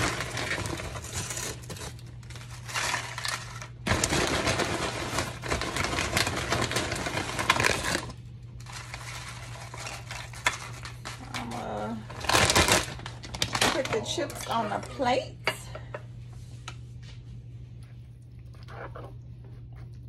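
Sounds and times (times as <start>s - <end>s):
chips crackling: 0.0s - 14.7s
plastic bag crinkling: 0.0s - 15.0s.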